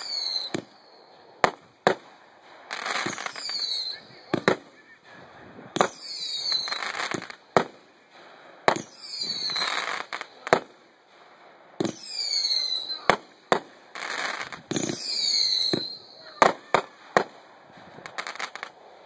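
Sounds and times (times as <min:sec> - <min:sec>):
falling firework whistle: 0:00.0 - 0:02.0, 0:02.7 - 0:04.9, 0:05.8 - 0:07.4, 0:08.7 - 0:10.5, 0:11.8 - 0:13.3, 0:13.9 - 0:18.8
firework bangs: 0:00.0 - 0:19.0.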